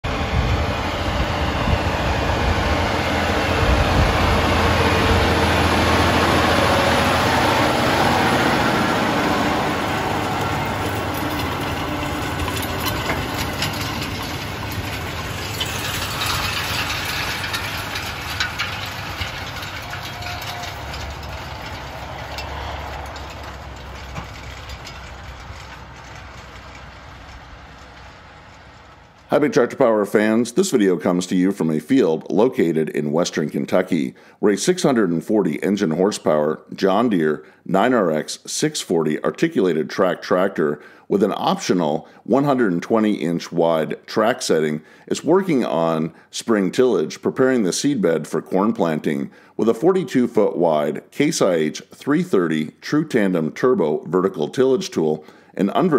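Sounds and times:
tractor diesel engine under load: 0:00.0 - 0:55.9
implement ticks and rattles: 0:02.8 - 0:29.4.

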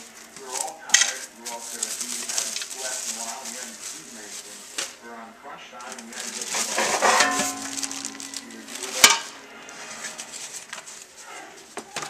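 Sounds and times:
plastic packing rustling: 0:00.0 - 0:05.2, 0:05.8 - 0:12.0
metal clank: 0:06.5 - 0:10.4.

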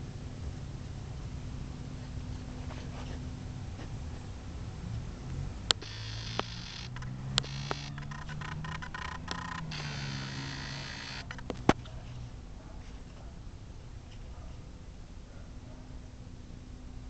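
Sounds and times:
sharp clicks: 0:05.7 - 0:11.8
camera zoom motor whirring: 0:05.8 - 0:11.6.

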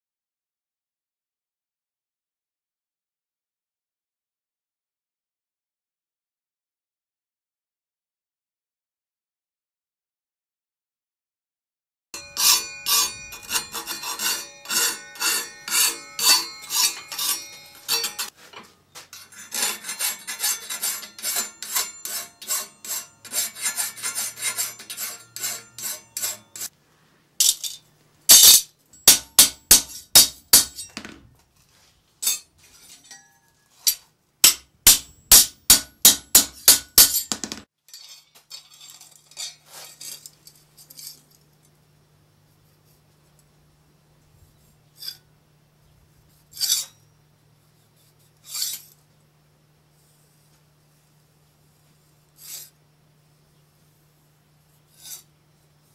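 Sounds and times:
hammer striking steel: 0:12.2 - 0:18.4, 0:19.2 - 0:26.7, 0:27.4 - 0:31.3, 0:32.2 - 0:37.7.

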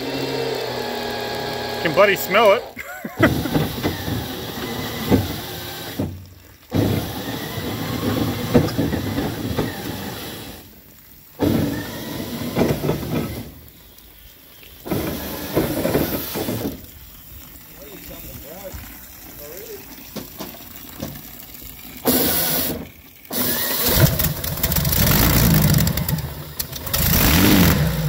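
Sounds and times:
engine turning over roughly: 0:00.0 - 0:10.7, 0:11.4 - 0:13.7, 0:14.8 - 0:17.0, 0:22.0 - 0:28.0.

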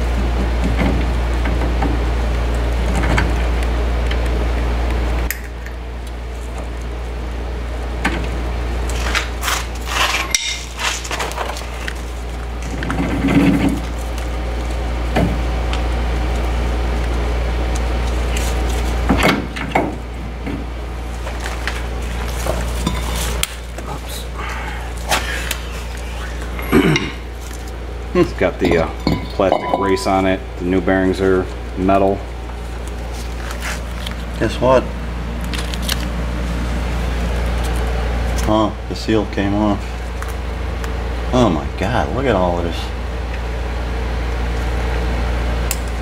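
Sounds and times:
steady low hum: 0:00.0 - 0:46.0
metal brake parts clinking: 0:28.6 - 0:30.3.

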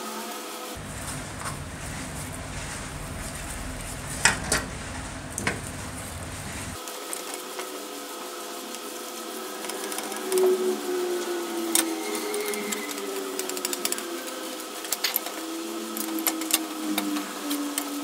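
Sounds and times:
brush scrubbing metal: 0:00.8 - 0:06.8.

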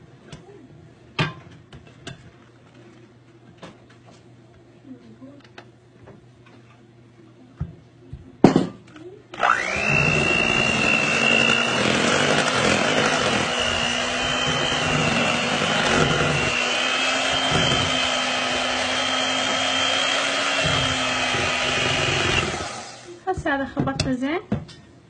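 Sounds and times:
electric hand mixer whine: 0:09.4 - 0:23.2.

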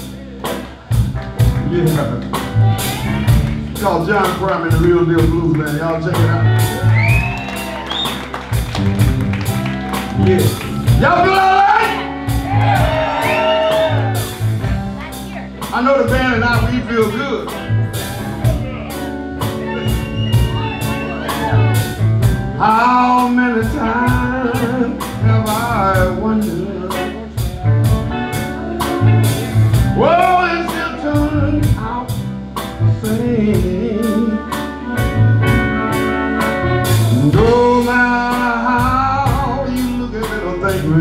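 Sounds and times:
drum kit steady beat: 0:00.0 - 0:41.0
electric bass: 0:00.0 - 0:41.0
electric guitar: 0:00.0 - 0:41.0
amplified harmonica wailing: 0:17.9 - 0:22.0.

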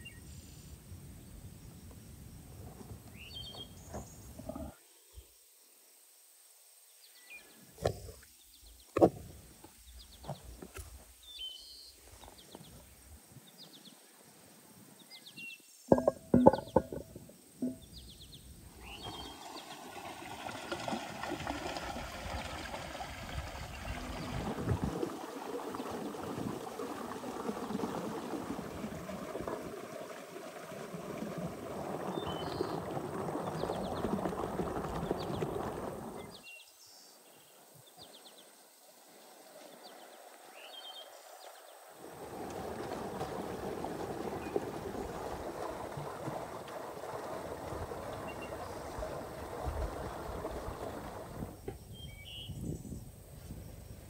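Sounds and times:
birds chirping: 0:15.0 - 0:19.8
sharp knocks: 0:15.9 - 0:17.8
water splashing in bowl: 0:15.9 - 0:17.9, 0:18.8 - 0:36.4, 0:42.1 - 0:51.5
water gushing from spout: 0:18.8 - 0:36.4, 0:42.0 - 0:51.6.

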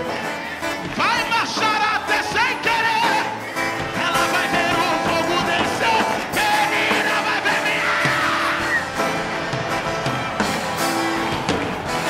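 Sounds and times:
person singing: 0:00.0 - 0:09.2
band playing worship music: 0:00.0 - 0:12.0.

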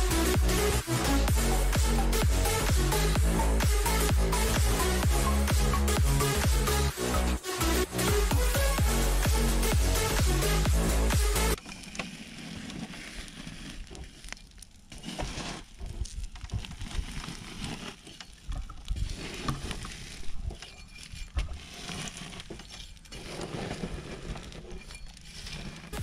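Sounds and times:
scraping rustles: 0:11.6 - 0:26.0.

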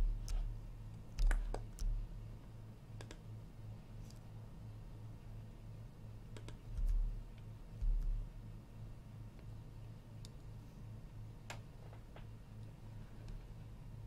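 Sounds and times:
low steady hum: 0:00.0 - 0:14.0
computer mouse and keyboard clicks: 0:01.1 - 0:02.0, 0:03.0 - 0:03.2, 0:06.4 - 0:07.1.

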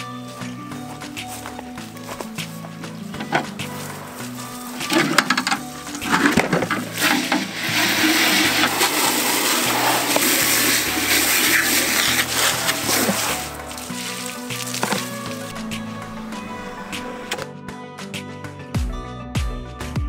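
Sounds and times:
background music: 0:00.0 - 0:20.0
knocks of hose and tubs: 0:02.2 - 0:16.0
water splashing into tub: 0:06.0 - 0:15.5.

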